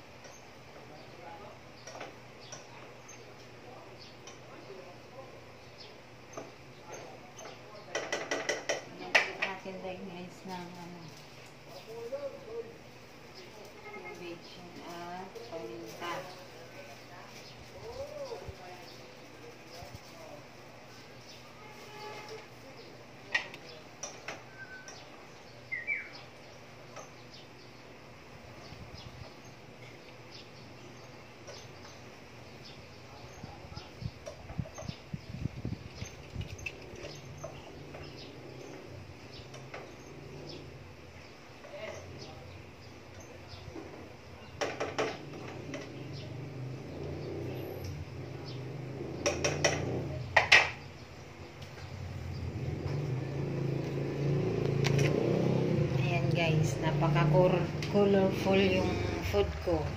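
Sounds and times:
cookware and utensils clattering: 7.5s - 9.6s.

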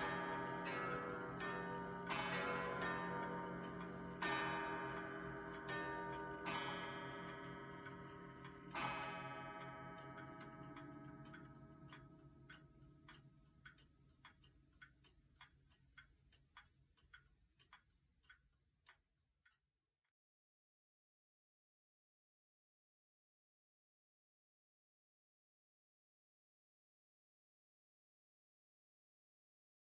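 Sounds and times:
wall clock striking: 0.0s - 13.8s.

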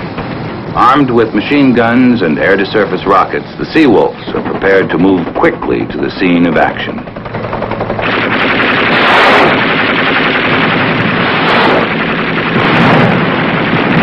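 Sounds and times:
machine-gun fire: 4.3s - 14.0s.

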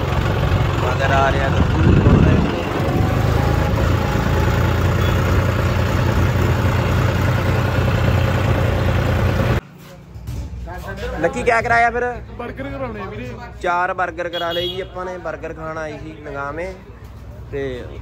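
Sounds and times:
tractor diesel engine running: 0.0s - 9.6s.

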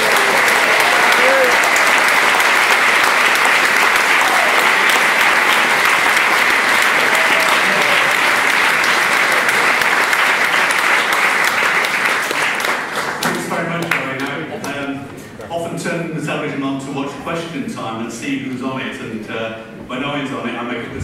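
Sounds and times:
audience applauding: 0.0s - 14.9s.

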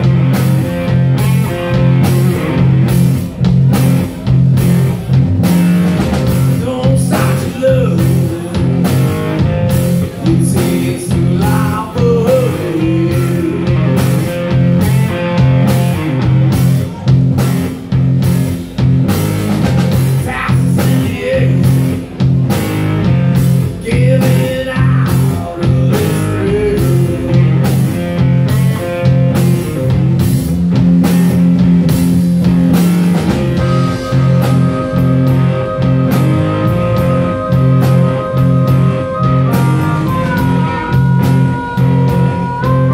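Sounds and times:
bass guitar: 0.0s - 42.9s
drum kit with cymbal hits: 0.0s - 42.9s
electric guitar: 0.0s - 42.9s
wavering lead line: 31.3s - 42.9s.

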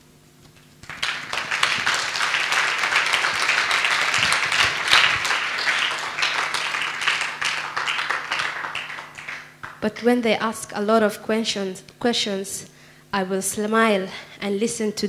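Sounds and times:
audience applauding: 0.8s - 9.8s.

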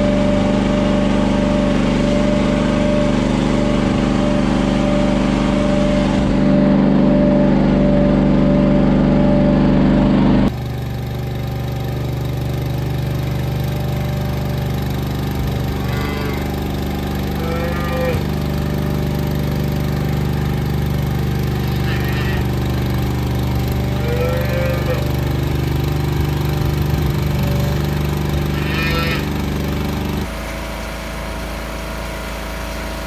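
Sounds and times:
engine running steadily: 0.0s - 33.0s
livestock calls: 15.8s - 16.6s, 17.2s - 18.8s, 21.6s - 22.8s, 23.8s - 25.2s, 28.5s - 29.3s.

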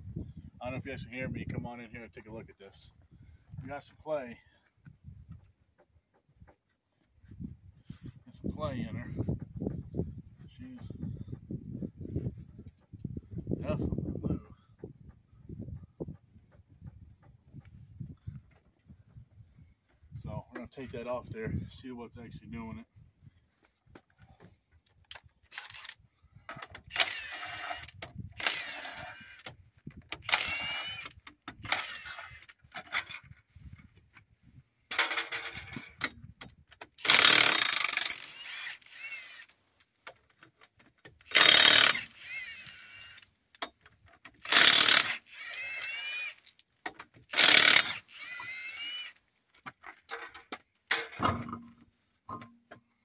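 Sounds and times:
impact wrench hammering: 37.0s - 38.4s, 41.3s - 42.1s, 44.4s - 45.6s, 47.3s - 48.1s.

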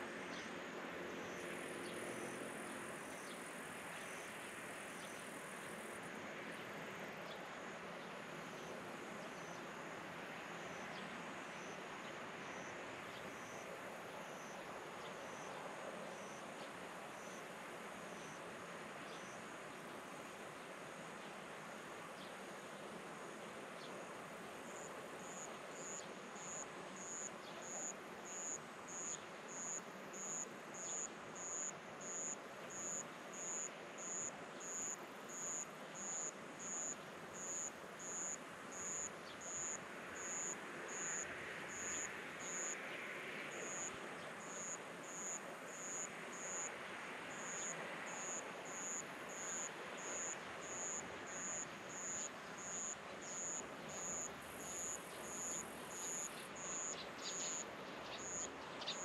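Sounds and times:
steady background hiss: 0.0s - 59.0s
insect chirping: 12.5s - 12.7s, 24.7s - 42.8s, 43.6s - 46.7s, 47.3s - 59.0s.

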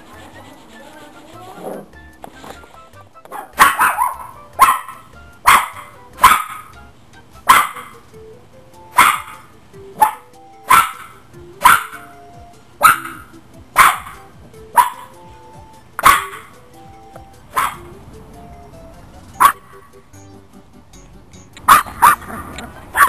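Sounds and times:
puppy barking: 3.3s - 6.8s, 7.4s - 8.1s, 8.9s - 12.2s, 12.8s - 15.2s, 16.0s - 16.6s, 17.5s - 17.9s, 19.4s - 19.9s, 21.6s - 23.0s.

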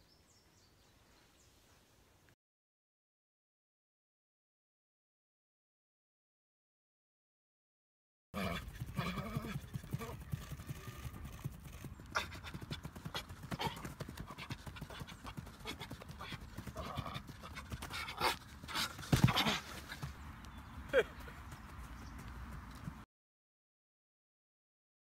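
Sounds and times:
football boots patter on artificial turf: 12.4s - 23.0s.

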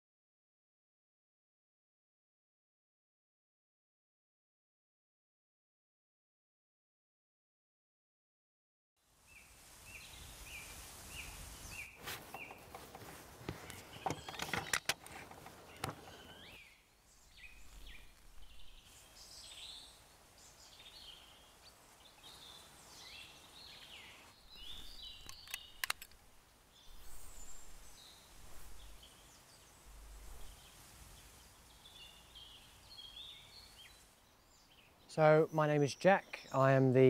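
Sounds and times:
small birds chirping: 9.2s - 37.0s
sharp clicks: 25.2s - 26.2s.

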